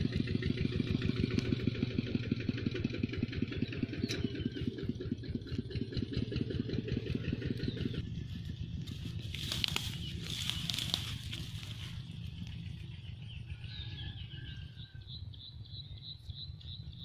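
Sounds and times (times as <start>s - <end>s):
low rumble: 0.0s - 17.0s
grass and net rustling: 8.2s - 12.8s.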